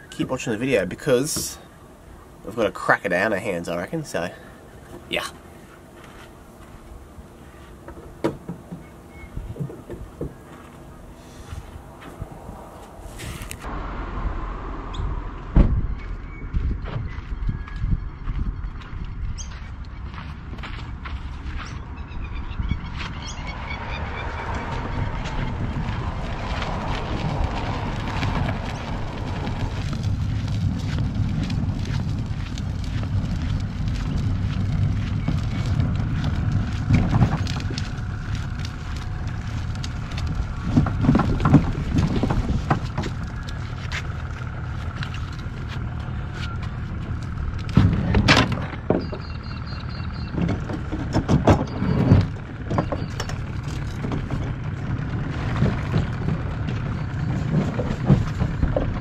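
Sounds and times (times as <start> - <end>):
motor running with low rumble: 4.4 - 59.0
loud knocks and bumps: 15.5 - 17.1, 40.6 - 43.3, 47.6 - 49.2.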